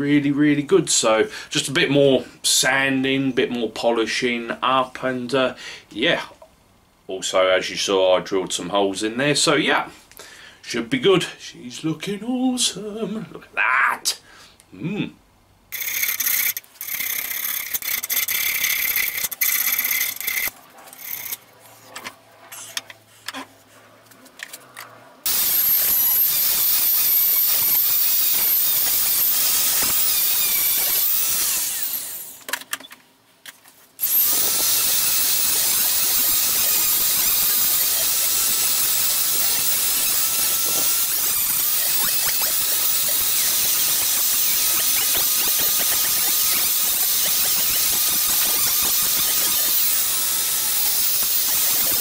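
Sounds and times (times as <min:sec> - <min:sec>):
electric rotary tool whining: 0:15.8 - 0:21.4, 0:25.3 - 0:32.4, 0:34.0 - 0:52.0.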